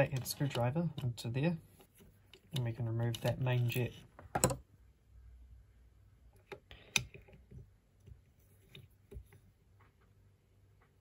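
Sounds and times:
screwdriver tapping metal: 0:02.3 - 0:04.6.

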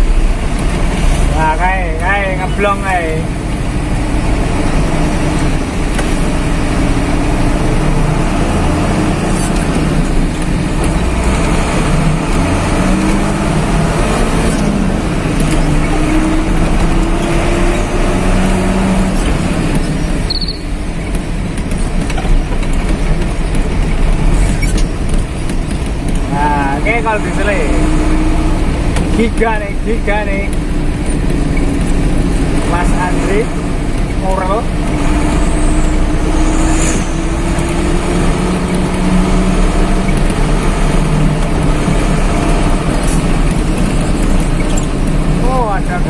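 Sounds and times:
truck engine and road noise: 0:00.0 - 0:46.0
short high chirp: 0:20.3 - 0:20.7.

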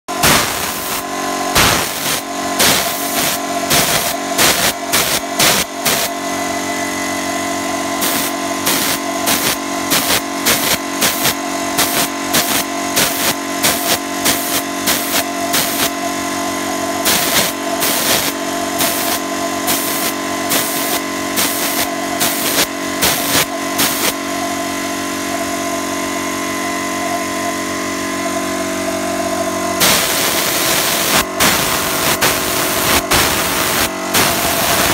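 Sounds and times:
air supply motor hum: 0:00.1 - 0:34.9
spray gun hissing: 0:00.2 - 0:06.1, 0:08.0 - 0:15.9, 0:17.0 - 0:24.2, 0:29.8 - 0:34.9.

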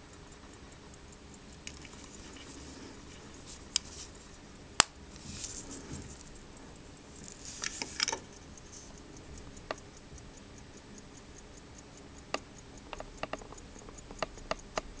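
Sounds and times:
pocket watch ticking: 0:00.0 - 0:15.0
clinks and clicks: 0:07.2 - 0:08.9.

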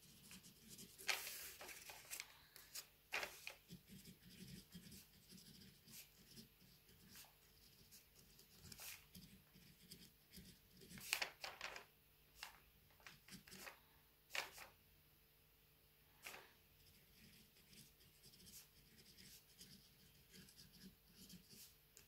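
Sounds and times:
pen scratching on leaf: 0:03.6 - 0:11.2, 0:16.3 - 0:21.7.

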